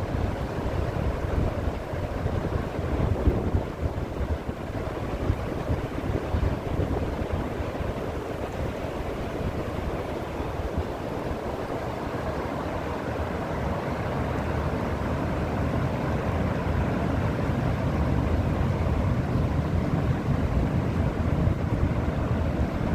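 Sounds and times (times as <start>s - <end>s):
wind buffeting microphone: 0.0s - 12.2s
river water rushing: 0.0s - 22.9s.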